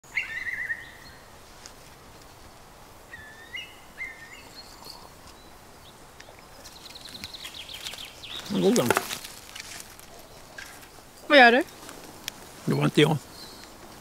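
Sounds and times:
whistled bird calls: 0.1s - 1.2s, 3.1s - 5.5s.

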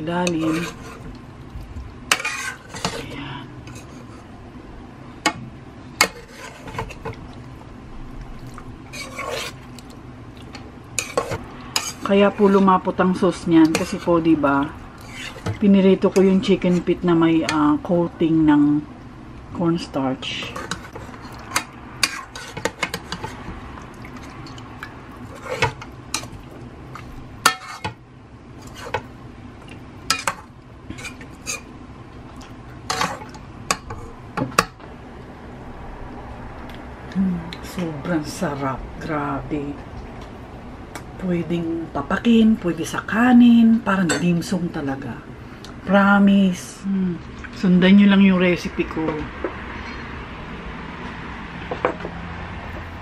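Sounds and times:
metal spoon scraping a pot: 0.2s - 1.1s, 2.1s - 4.3s, 6.0s - 7.1s, 8.9s - 9.6s, 11.0s - 12.8s, 13.6s - 14.2s, 15.0s - 15.6s, 20.4s - 23.4s, 25.2s - 26.4s, 27.0s - 28.0s, 30.1s - 31.7s, 32.9s - 34.2s
metal spoon scraping metal pot: 0.2s - 1.1s, 2.1s - 3.1s, 6.0s - 7.0s, 8.9s - 9.6s, 11.0s - 12.7s, 13.6s - 14.2s, 15.0s - 15.6s, 27.0s - 27.9s.

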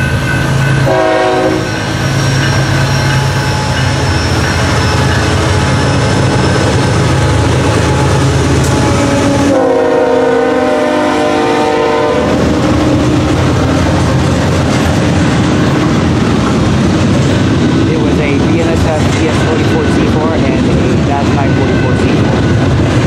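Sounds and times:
diesel locomotive rumbling: 0.0s - 23.0s
train wheels on rails: 0.0s - 23.0s
train air horn: 0.8s - 2.0s, 8.8s - 12.4s.

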